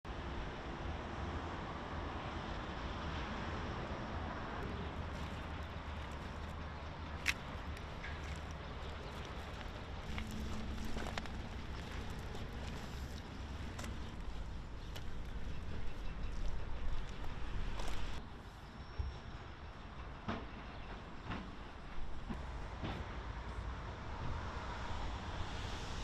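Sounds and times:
footsteps crunching on gravel: 0:04.6 - 0:18.2
steady low rumble: 0:04.6 - 0:18.2.

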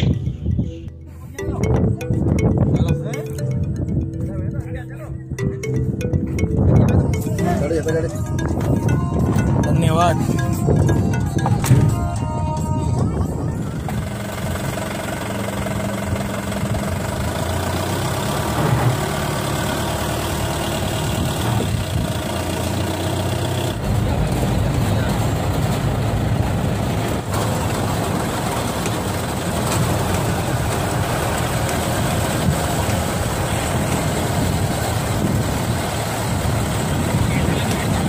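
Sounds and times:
car engine running: 0:13.5 - 0:38.0.

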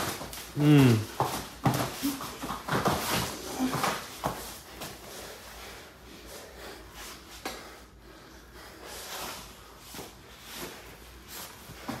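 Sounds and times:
breathing: 0:04.4 - 0:10.8.

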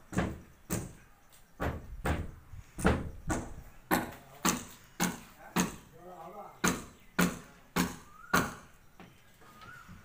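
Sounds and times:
sharp ringing knocks: 0:06.6 - 0:08.7.

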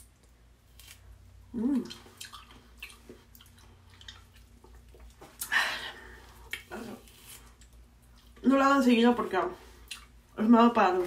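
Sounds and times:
person humming: 0:01.5 - 0:02.0
wet chewing clicks and squishes: 0:01.9 - 0:05.5.

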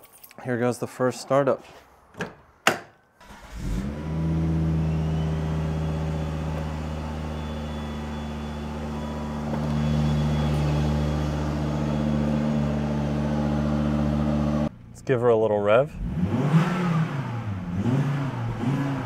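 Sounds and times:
car engine idling: 0:04.4 - 0:15.0.

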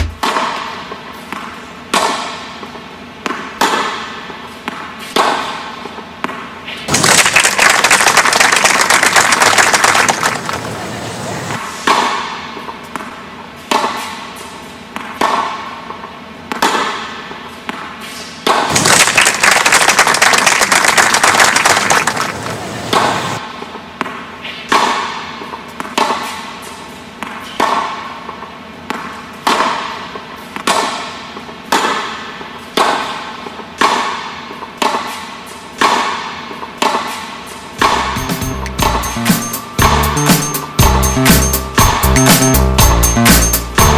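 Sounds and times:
tennis ball hits: 0:00.0 - 0:00.7, 0:22.9 - 0:23.1, 0:37.8 - 0:39.0
audience applause: 0:07.0 - 0:11.0, 0:18.8 - 0:22.8.

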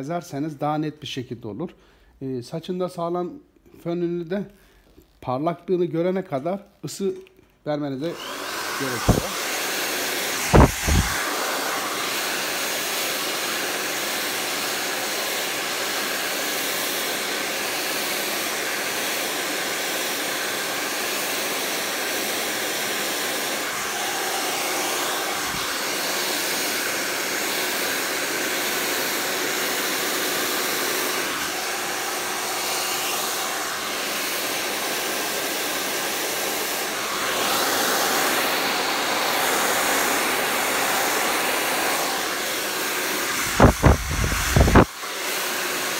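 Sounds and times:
hair dryer blowing: 0:07.9 - 0:45.9.

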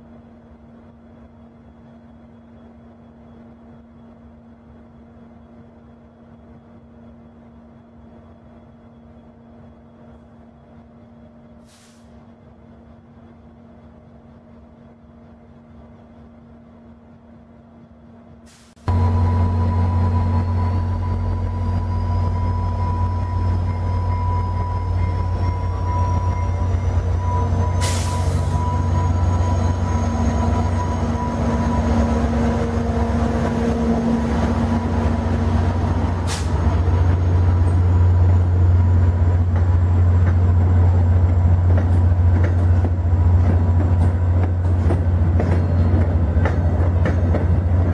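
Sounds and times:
short hiss: 0:11.6 - 0:12.2, 0:18.5 - 0:18.9.

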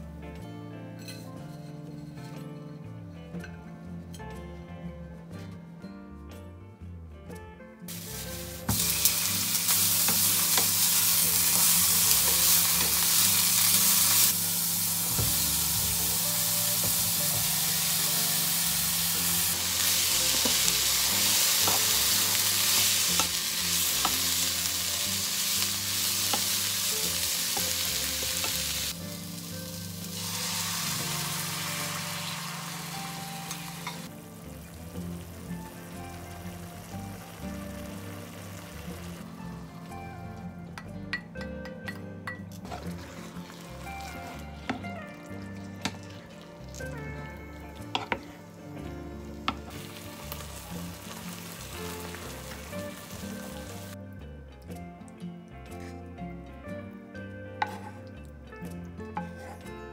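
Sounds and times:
food sizzling in a hot pan: 0:07.9 - 0:39.8, 0:42.6 - 0:47.1, 0:49.5 - 0:54.0.

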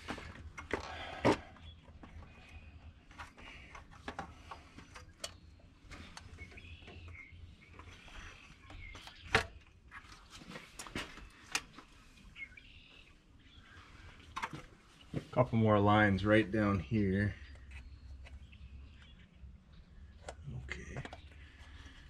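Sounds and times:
faint bird chirps: 0:04.5 - 0:09.7, 0:10.5 - 0:14.2.

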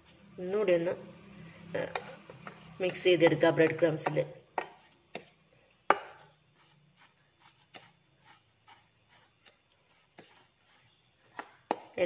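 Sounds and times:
fork tapping on plastic plate: 0:05.9 - 0:06.2.

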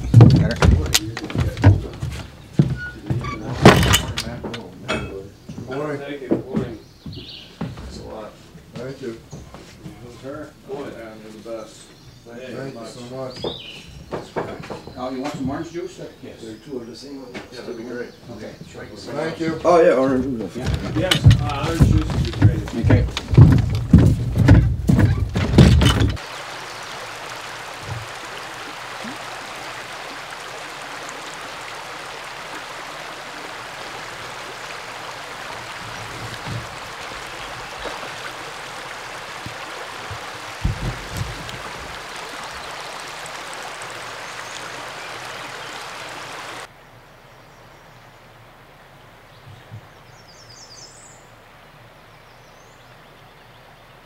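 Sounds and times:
outdoor air: 0:00.0 - 0:54.0
river rushing over riffle: 0:25.0 - 0:46.7.

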